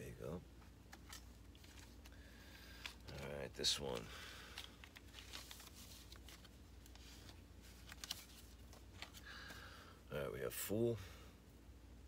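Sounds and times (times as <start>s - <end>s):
low room hum: 0.0s - 12.0s
plastic sleeve rustling and clicking: 0.6s - 9.6s.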